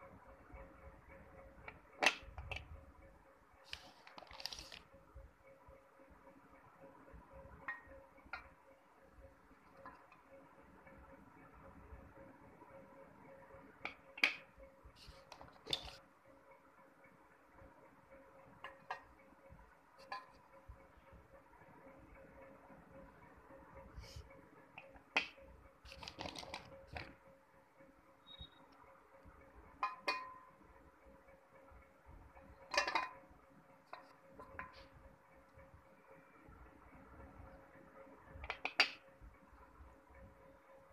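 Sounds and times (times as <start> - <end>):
faint steady hum: 0.0 - 40.9
bar knocking in metal pot: 29.8 - 30.5, 32.7 - 33.2.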